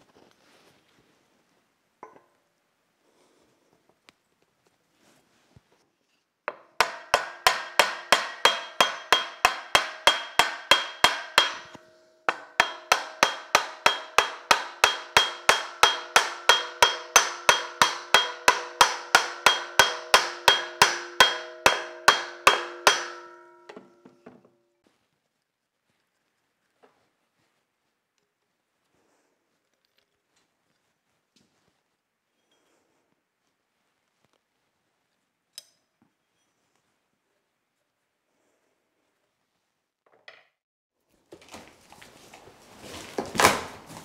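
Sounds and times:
hammer blows with metallic ring: 0:06.8 - 0:24.4.

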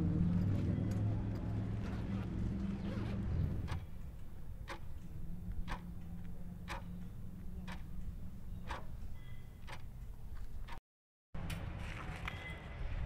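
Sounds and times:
clock ticking: 0:03.7 - 0:08.9, 0:09.6 - 0:09.9.

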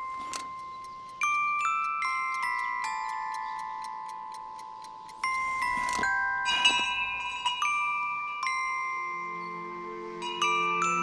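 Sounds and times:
pocket watch ticking: 0:00.0 - 0:08.7
chiming melody notes: 0:00.0 - 0:11.0.

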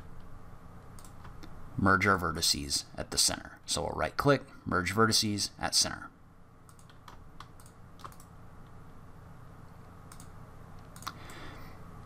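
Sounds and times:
faint low hum: 0:00.0 - 0:12.0
computer mouse clicks: 0:01.0 - 0:01.5, 0:06.7 - 0:08.3, 0:09.7 - 0:11.4.

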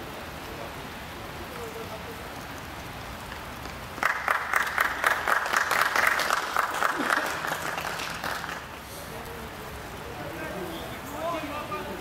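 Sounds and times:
crowd applause: 0:03.9 - 0:08.9.

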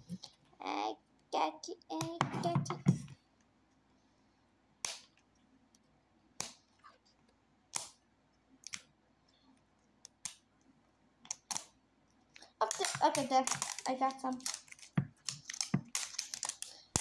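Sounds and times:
plastic wrapping crackling: 0:12.4 - 0:17.0.

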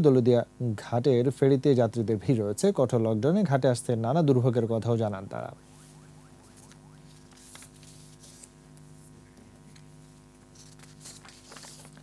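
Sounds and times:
faint low hum: 0:00.4 - 0:12.0.

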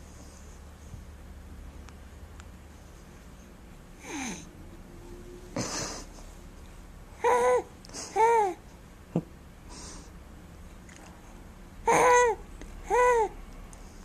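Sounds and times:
baby laughing exhale: 0:04.0 - 0:04.5, 0:07.2 - 0:08.6
baby cooing: 0:07.2 - 0:08.6, 0:11.9 - 0:13.4.

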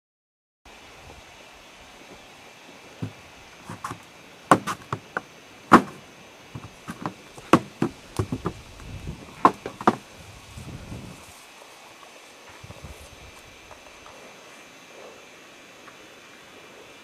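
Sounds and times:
brush hitting legs: 0:03.0 - 0:06.0, 0:06.6 - 0:08.6.

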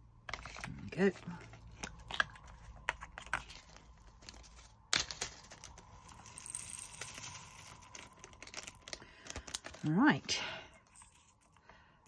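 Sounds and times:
plastic container clicking: 0:08.3 - 0:09.8.

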